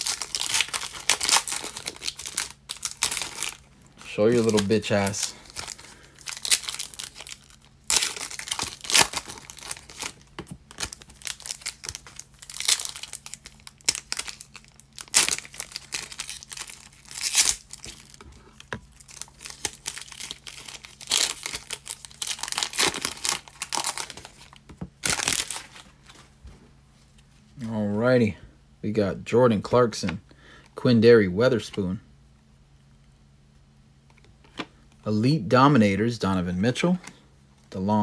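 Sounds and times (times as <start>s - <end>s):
foil wrapper crinkling and tearing: 0.0s - 26.2s.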